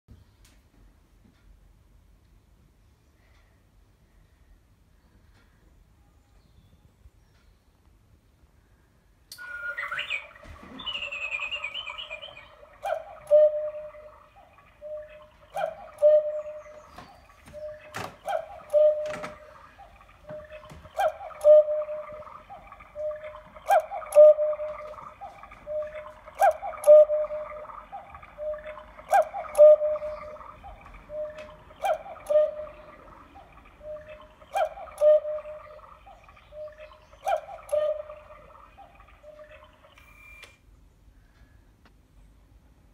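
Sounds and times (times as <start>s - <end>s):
cuckoo clock two-note call: 9.3s - 14.2s, 14.8s - 17.0s, 17.6s - 19.6s, 20.3s - 22.3s, 23.0s - 25.0s, 25.7s - 27.7s, 28.4s - 30.5s.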